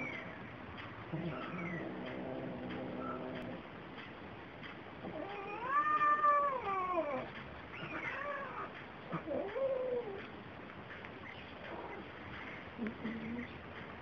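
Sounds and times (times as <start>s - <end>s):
cats yowling: 1.2s - 3.6s, 5.0s - 10.3s.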